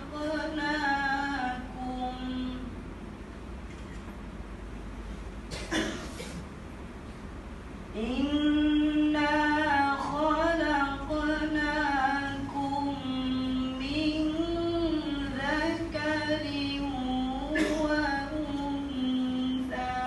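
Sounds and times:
person reciting melodically: 0:00.0 - 0:02.7, 0:07.9 - 0:20.0.

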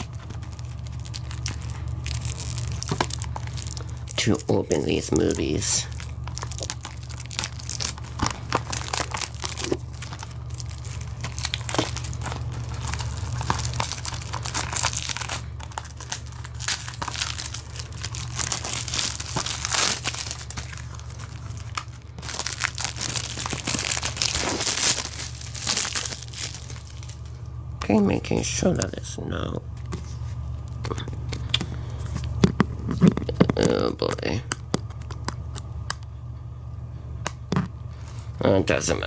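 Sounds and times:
plastic wrap crinkling and tearing: 0:00.0 - 0:27.4.

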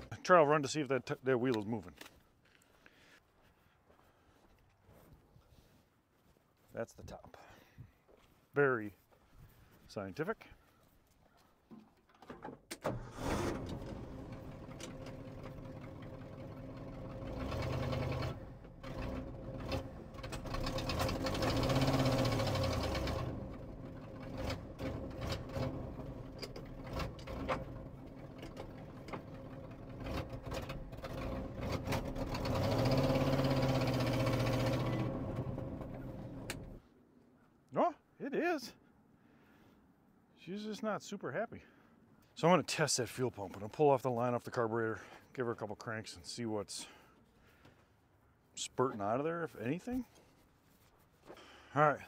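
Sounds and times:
truck engine running rough: 0:13.2 - 0:36.8.

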